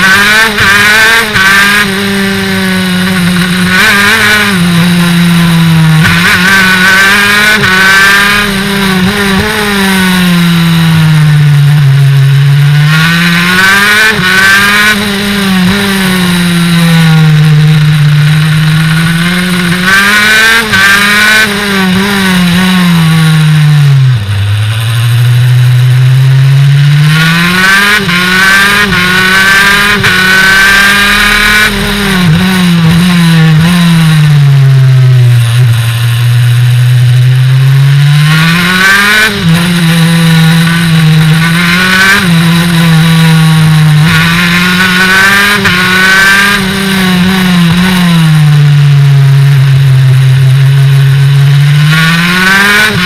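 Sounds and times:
kart engine revving: 0:00.0 - 0:53.0.

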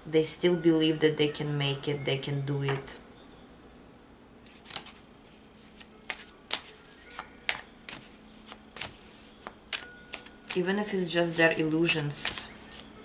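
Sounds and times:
cards being shuffled: 0:04.5 - 0:11.5, 0:12.1 - 0:13.0.

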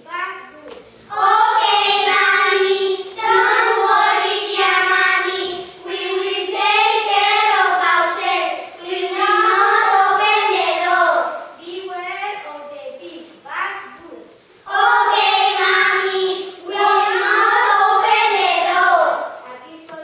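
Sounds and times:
child singing: 0:01.1 - 0:11.4, 0:14.7 - 0:20.0.

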